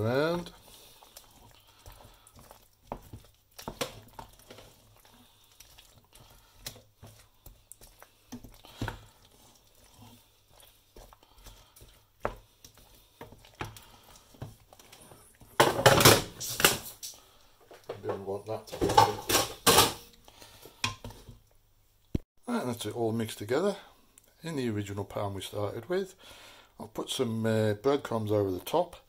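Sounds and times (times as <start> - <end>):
spoon knocking and scraping pan: 0.0 - 16.9, 17.7 - 20.1, 20.7 - 21.4.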